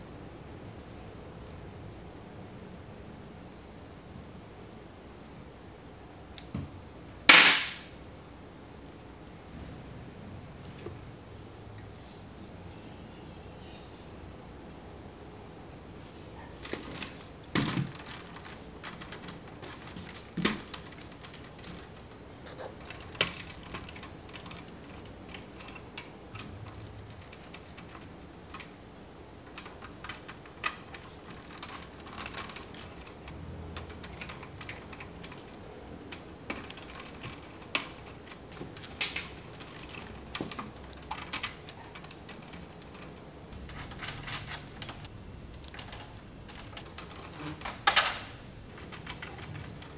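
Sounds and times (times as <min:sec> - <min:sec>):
sharp plastic snaps: 0:07.3 - 0:07.9.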